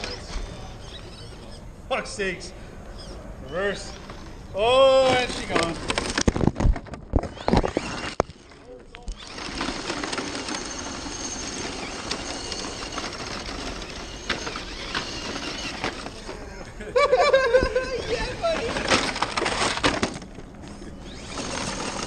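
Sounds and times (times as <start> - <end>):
toy truck crunching over rocks: 4.0 - 16.4, 18.0 - 22.0
toy truck tipping over clattering: 4.9 - 16.4, 18.4 - 22.0.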